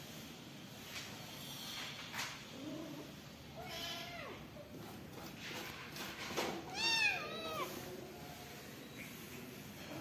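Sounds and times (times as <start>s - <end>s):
kitten meowing: 6.7s - 7.8s.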